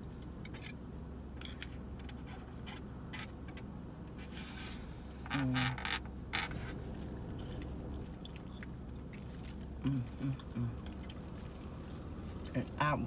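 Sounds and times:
styrofoam container creaking: 5.2s - 7.0s.

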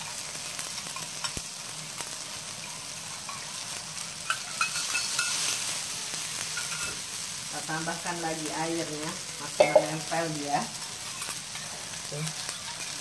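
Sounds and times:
onion sizzling in a wok: 0.0s - 13.0s
metal spatula scraping a pan: 3.1s - 5.8s.

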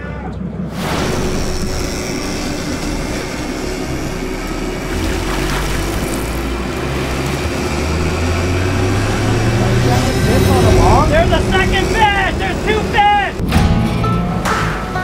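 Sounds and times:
boat engines droning: 0.0s - 15.0s
rushing water: 0.8s - 13.4s.

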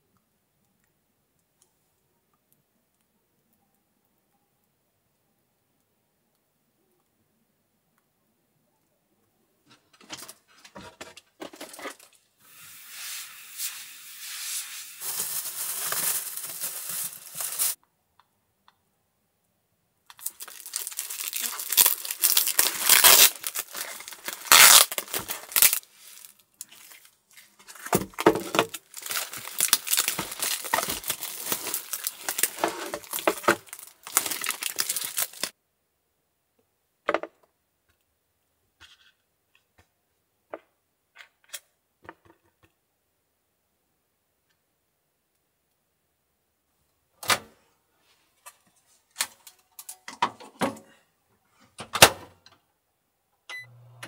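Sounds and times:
foil packet crinkling and tearing: 12.8s - 17.8s, 20.1s - 35.6s.

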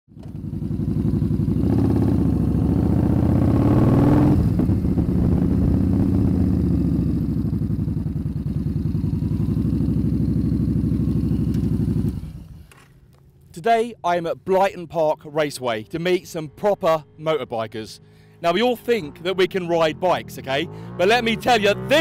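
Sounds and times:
motorcycle engine revving and idling: 0.1s - 13.1s, 18.6s - 22.0s.

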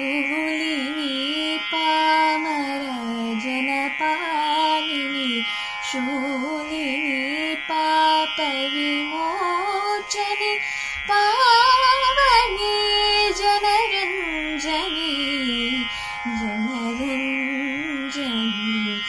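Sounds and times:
girl singing ornamented melody: 0.0s - 19.0s
steady drone: 8.8s - 19.0s.

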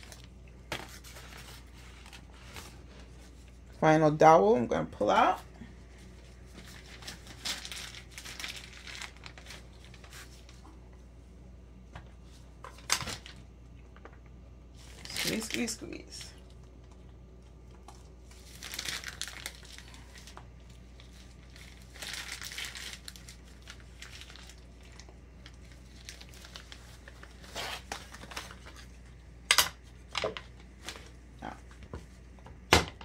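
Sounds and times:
plastic piping bag crinkling: 0.0s - 3.6s, 6.0s - 10.8s, 12.2s - 31.2s.

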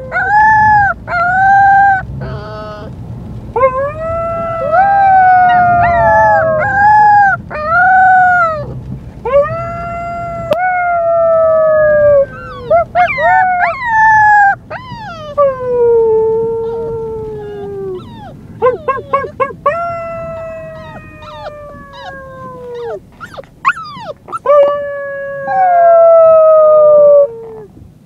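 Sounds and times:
puppy howling: 0.0s - 2.9s, 3.6s - 8.7s, 9.3s - 27.7s
puppy yelps: 0.0s - 2.9s, 3.6s - 8.7s, 12.0s - 26.4s.

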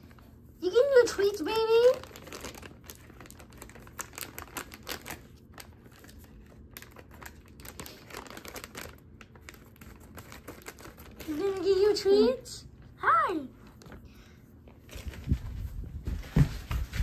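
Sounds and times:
plastic package crinkling: 1.2s - 12.1s.

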